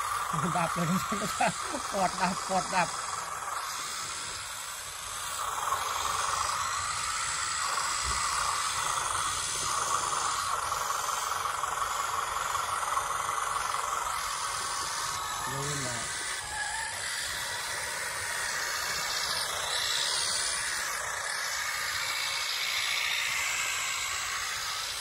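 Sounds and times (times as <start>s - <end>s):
model tractor electric drive whirring: 0.0s - 25.0s.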